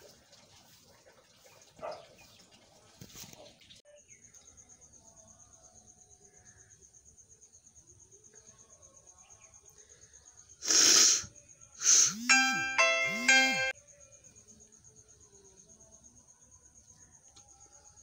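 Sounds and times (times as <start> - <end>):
person blowing nose: 10.6 - 12.3
electronic doorbell chime: 12.1 - 13.8.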